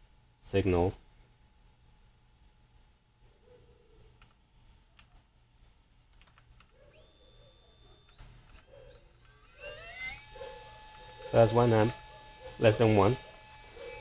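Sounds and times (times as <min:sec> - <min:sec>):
electric motor whine: 0:06.9 - 0:14.0
high-pitched electronic whine tones: 0:06.9 - 0:14.0.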